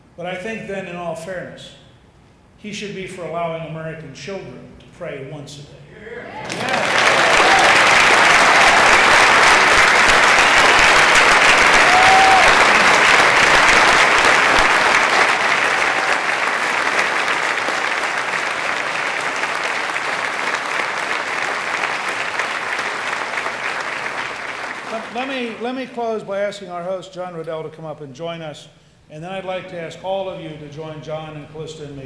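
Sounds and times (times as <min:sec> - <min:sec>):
audience applauding: 0:06.3 - 0:25.6.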